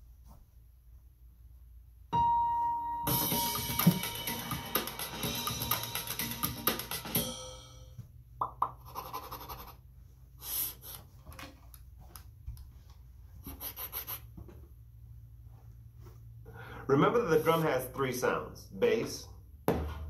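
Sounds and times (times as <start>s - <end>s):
music with drumming: 3.1s - 8.0s.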